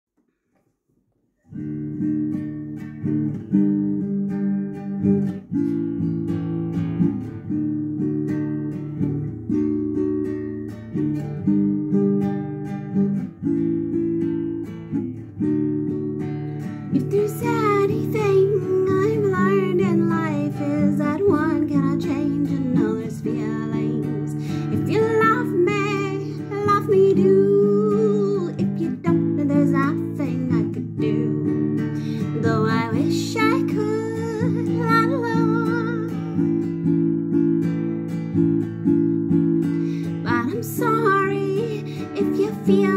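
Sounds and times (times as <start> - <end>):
acoustic guitar chords: 1.5 - 42.9
woman singing: 16.8 - 36.8, 39.3 - 42.9.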